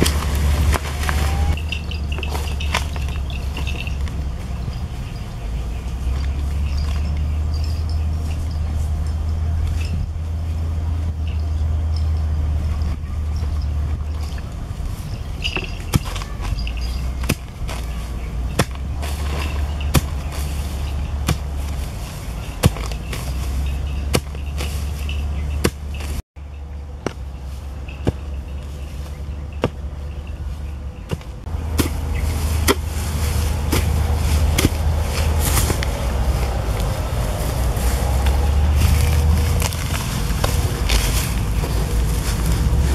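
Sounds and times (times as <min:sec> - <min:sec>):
steady low rumble: 0:00.0 - 0:42.9
wooden stick knocking into dirt: 0:18.6 - 0:20.5, 0:31.1 - 0:32.9.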